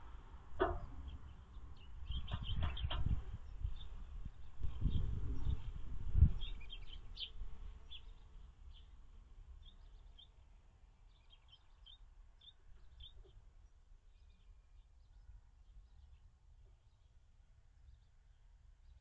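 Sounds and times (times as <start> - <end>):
low rumbling and knocking: 0.6 - 1.1, 2.1 - 3.3
birds chirping: 0.6 - 5.7, 9.6 - 17.1.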